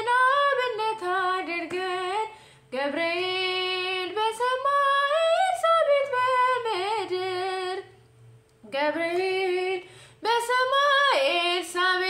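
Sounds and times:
woman singing unaccompanied: 0:00.0 - 0:12.0
breath: 0:02.4 - 0:02.7, 0:09.9 - 0:10.2.

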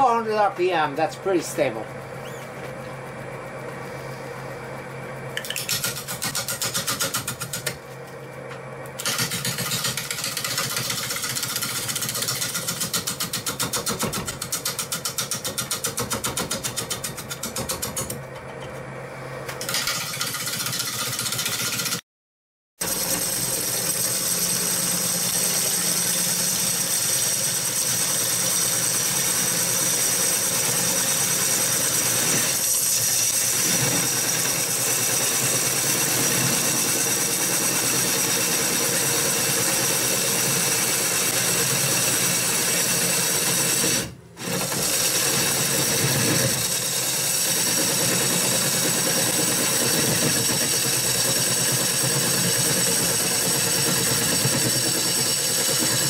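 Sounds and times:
lathe motor high whine: 0:00.0 - 0:05.4, 0:22.8 - 0:56.0
gouge cutting wood on lathe: 0:22.8 - 0:56.0.

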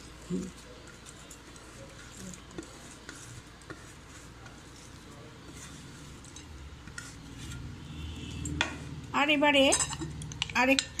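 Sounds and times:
soft kitchen clicks and taps: 0:09.7 - 0:11.0.

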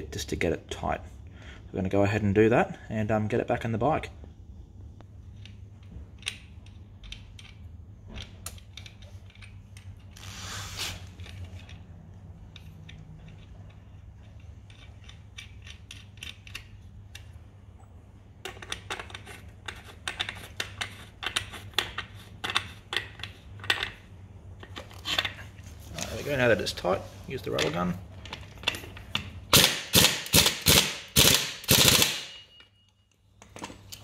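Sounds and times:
metal clicks and taps: 0:05.4 - 0:10.0, 0:12.5 - 0:17.4.

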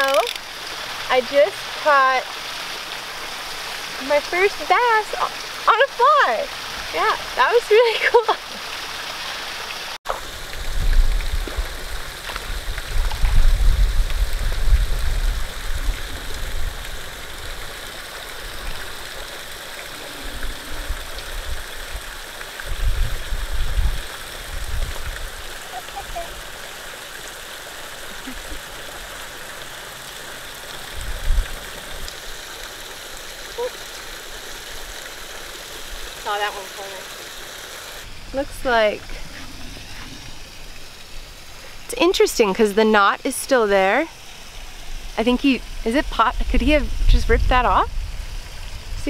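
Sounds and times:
waterfall spilling into pond: 0:00.0 - 0:49.0
wind rumble on microphone: 0:10.2 - 0:26.4, 0:30.9 - 0:32.1, 0:44.8 - 0:49.0.

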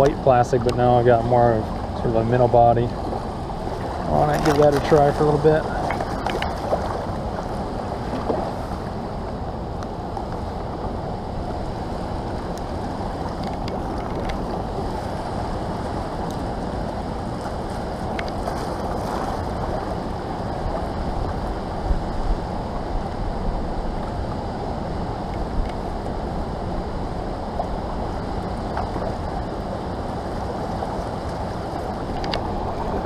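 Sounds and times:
wind rumbling on microphone: 0:00.0 - 0:33.0
river rushing over rocks: 0:10.7 - 0:33.0.

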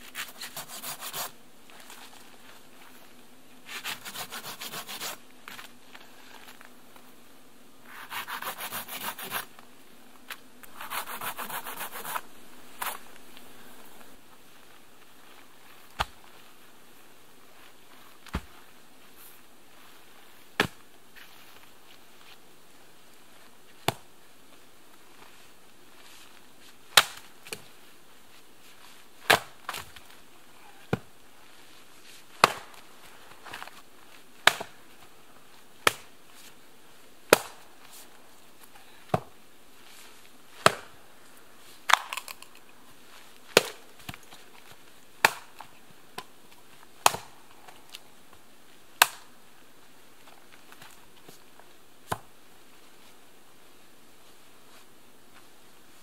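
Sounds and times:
axe chopping wood: 0:32.4 - 0:32.8, 0:34.4 - 0:34.7, 0:37.3 - 0:37.6, 0:40.6 - 0:40.9, 0:43.6 - 0:43.8, 0:45.2 - 0:45.5, 0:47.0 - 0:47.3.

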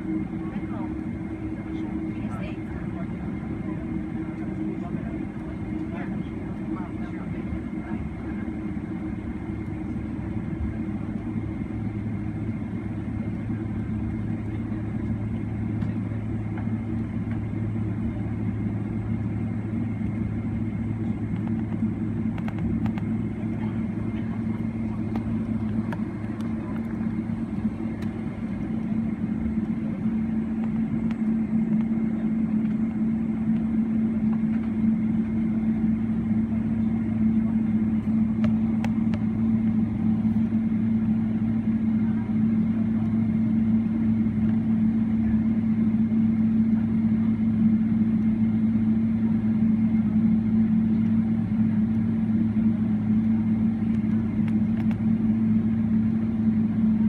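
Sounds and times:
airplane cabin drone: 0:00.0 - 0:57.0.

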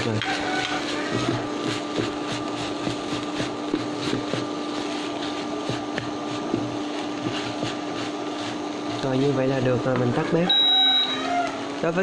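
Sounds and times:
wooden spatula scraping a pan: 0:00.0 - 0:09.8
steady hum: 0:00.0 - 0:12.0.

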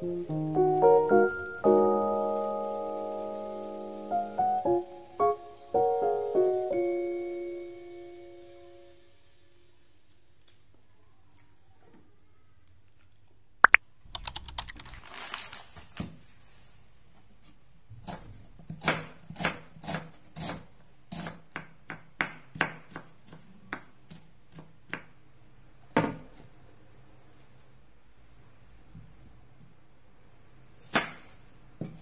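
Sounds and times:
sharp clicks: 0:13.6 - 0:15.0
knife slicing onion on board: 0:18.0 - 0:25.2, 0:30.8 - 0:32.0.

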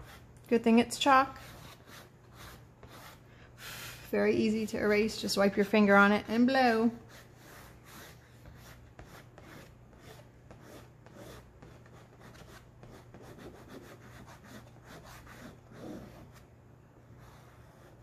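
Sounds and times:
chalk scratching on board: 0:00.0 - 0:00.3, 0:01.3 - 0:04.1, 0:07.0 - 0:16.4.

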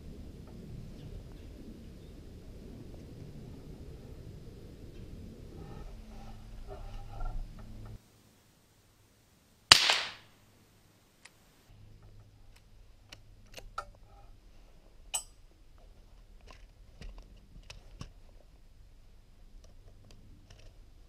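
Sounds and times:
rifle handling clicks: 0:09.7 - 0:10.2
rifle shot: 0:09.7 - 0:10.4.

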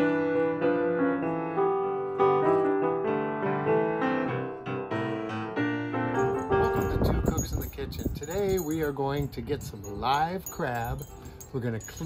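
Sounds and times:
gentle solo piano: 0:00.0 - 0:08.2.

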